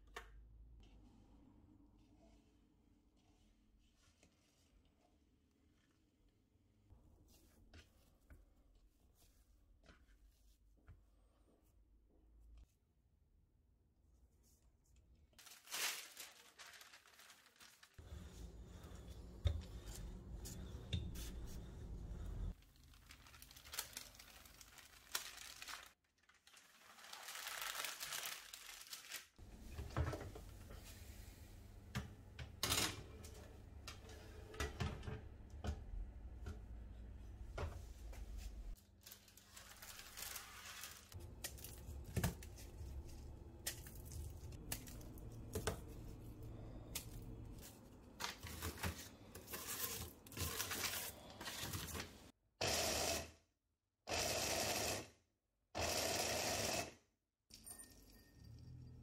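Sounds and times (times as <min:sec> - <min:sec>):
parchment paper rustling: 0:15.4 - 0:29.4, 0:38.7 - 0:52.3.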